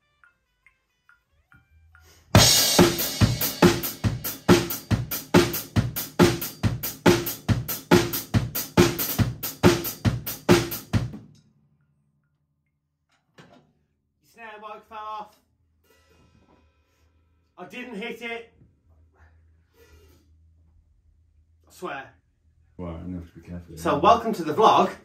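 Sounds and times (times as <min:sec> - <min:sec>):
acoustic drum kit groove: 0:02.3 - 0:11.4.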